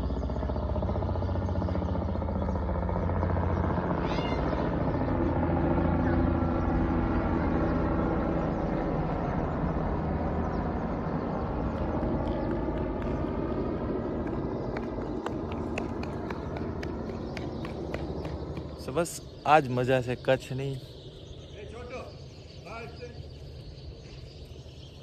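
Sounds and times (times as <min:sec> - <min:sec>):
helicopter rotor and engine: 0:00.0 - 0:25.0
high warbling chirp: 0:07.6 - 0:25.0.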